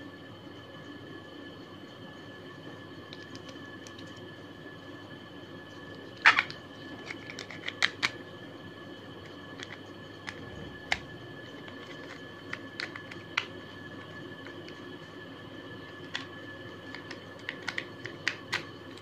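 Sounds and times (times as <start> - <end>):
faint high whine: 0.0 - 19.0
plastic clatter: 6.2 - 8.2.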